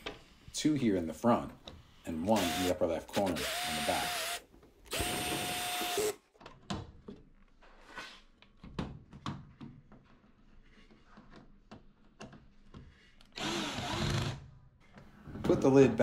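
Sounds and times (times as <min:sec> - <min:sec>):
cordless drill driving screw: 0:02.3 - 0:06.2, 0:13.4 - 0:14.4.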